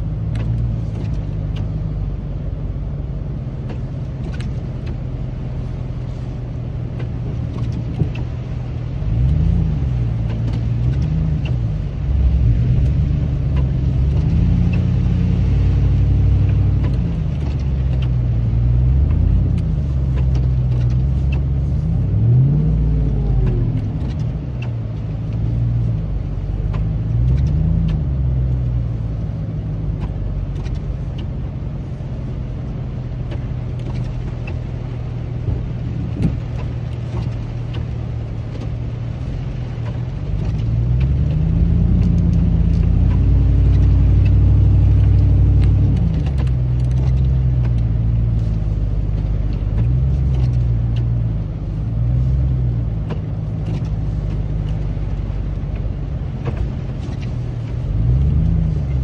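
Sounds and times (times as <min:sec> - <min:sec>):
truck engine revving: 0:08.4 - 0:29.0, 0:40.1 - 0:51.3.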